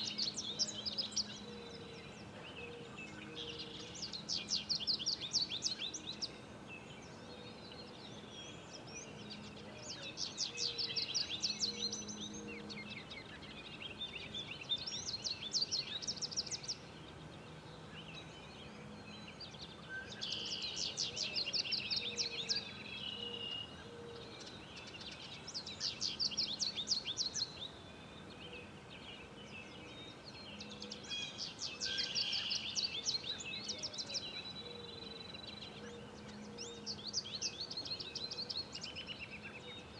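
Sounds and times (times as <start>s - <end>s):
songbird trilling: 30.5s - 39.8s.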